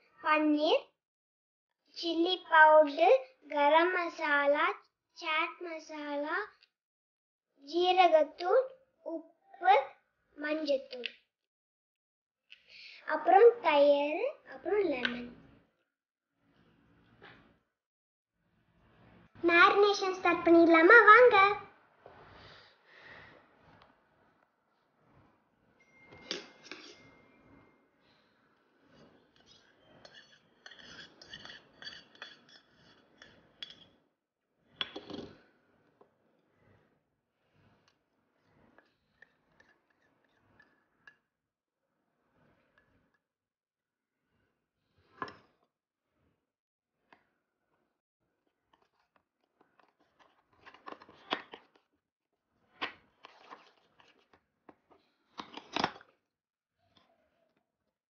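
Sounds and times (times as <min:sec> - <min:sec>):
spoon clinking on steel bowls: 0:26.1 - 0:27.2, 0:29.4 - 0:34.0.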